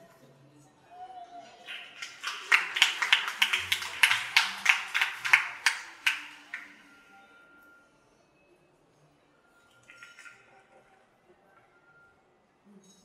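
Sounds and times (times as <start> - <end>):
hand clapping: 1.6 - 6.8.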